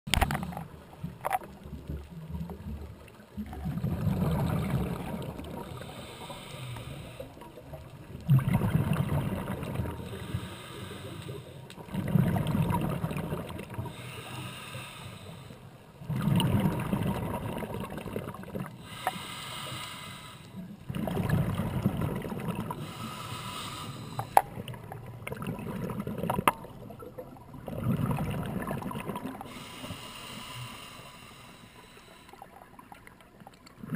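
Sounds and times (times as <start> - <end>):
exhaled bubbles underwater: 0.1 - 14.2, 16.0 - 19.3, 20.6 - 23.4, 24.1 - 30.8, 32.1 - 33.9
regulator inhalation hiss: 5.8 - 7.3, 10.1 - 11.6, 13.9 - 15.7, 18.8 - 20.6, 22.8 - 24.4, 29.5 - 32.4.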